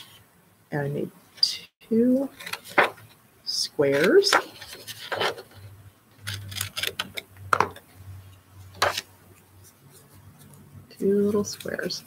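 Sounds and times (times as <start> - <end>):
paper rustling and scraping: 2.3 - 3.2, 3.8 - 7.8, 8.7 - 12.0.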